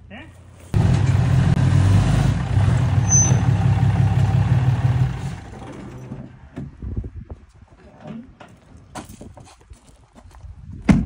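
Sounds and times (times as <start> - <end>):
pickup truck engine running: 0.8 - 6.0
short high squeal: 3.0 - 3.6.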